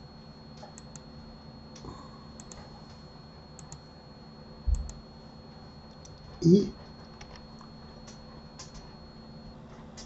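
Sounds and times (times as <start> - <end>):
faint high whine: 0.0 - 10.0
keyboard and mouse clicking: 0.6 - 1.1, 2.4 - 2.6, 3.6 - 3.8, 4.7 - 5.0.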